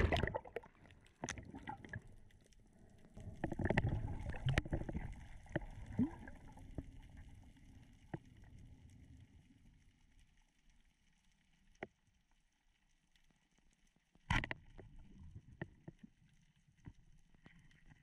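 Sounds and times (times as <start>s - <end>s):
water splashing and bubbling: 0.0s - 8.8s.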